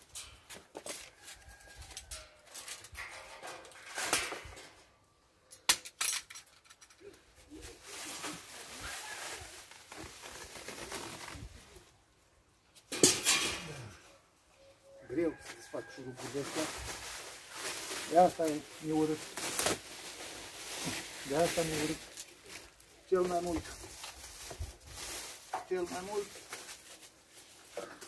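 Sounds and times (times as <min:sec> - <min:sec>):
metal clinks and scraping: 0:00.0 - 0:04.9, 0:12.8 - 0:14.0
metal clatter: 0:02.2 - 0:04.9, 0:12.9 - 0:13.8.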